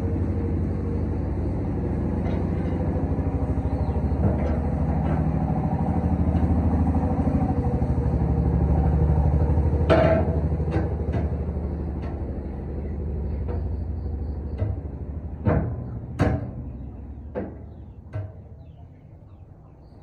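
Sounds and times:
low machine hum: 0.0s - 20.0s
metal knocks and clanks: 1.9s - 7.3s, 9.4s - 18.8s.

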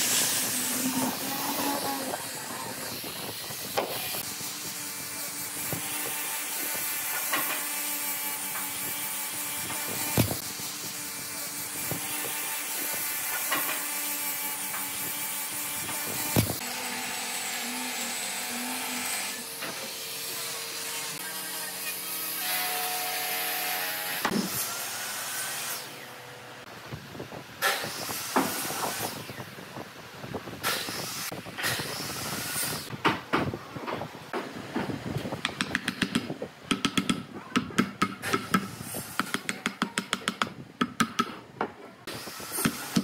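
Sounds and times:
power sander on wood: 0.0s - 26.0s
wooden pieces knocking and clicking: 35.4s - 38.6s.

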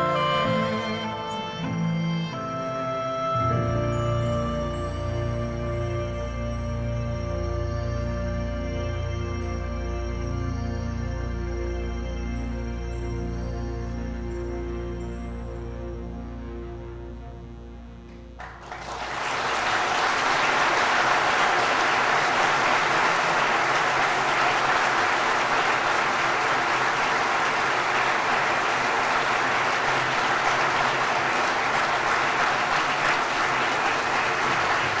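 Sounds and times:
audience applauding: 18.4s - 35.0s.

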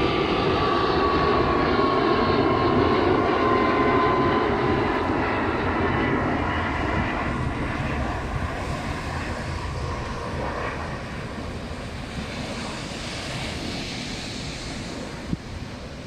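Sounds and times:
airplane passing overhead: 0.0s - 16.0s.

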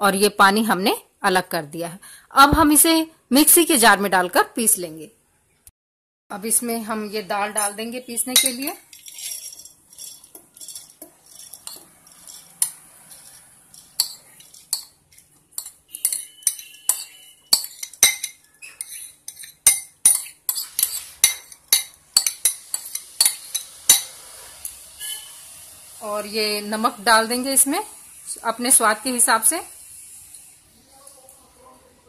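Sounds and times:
utensil clinking against steel jar: 7.6s - 24.1s.

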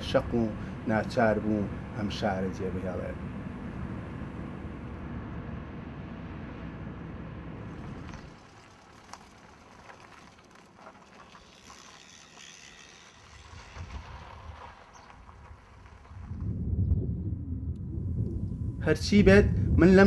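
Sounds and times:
car interior road rumble: 0.0s - 11.2s
street ambience: 0.0s - 16.8s.

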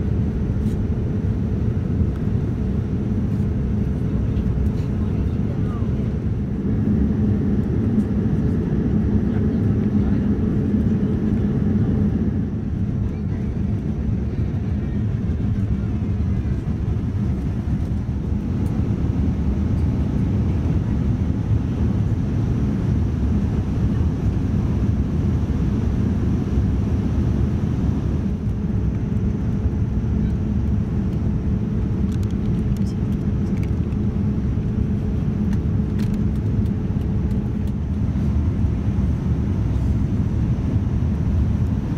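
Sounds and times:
airliner engines droning: 0.0s - 41.9s
constant low hum: 0.0s - 41.9s.

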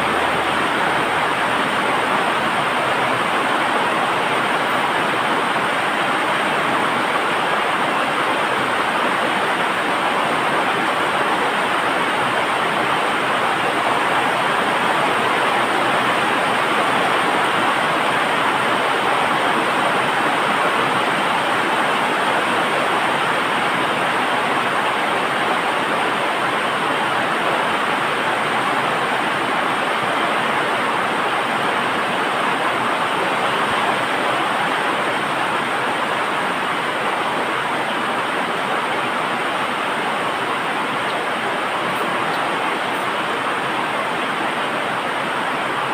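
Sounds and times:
loud steady rushing noise: 0.0s - 45.9s.

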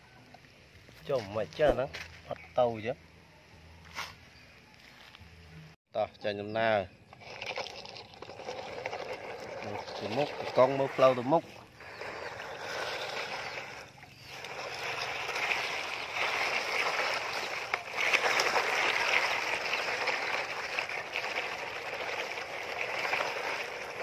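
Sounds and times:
water swishing and churning: 7.1s - 24.0s.

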